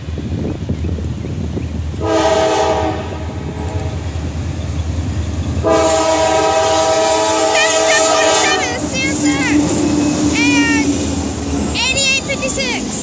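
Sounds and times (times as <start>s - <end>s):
train rumble: 0.0s - 13.0s
locomotive air horn blasts: 2.0s - 4.0s, 5.6s - 8.9s.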